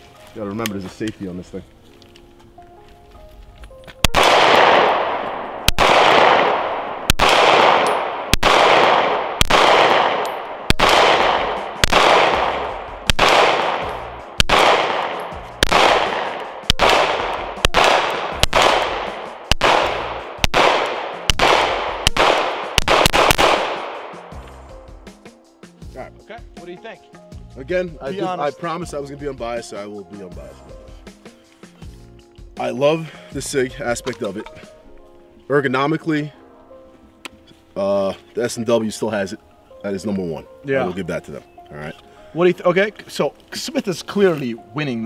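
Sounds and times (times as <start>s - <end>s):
pistol shots with echo: 4.0s - 24.3s.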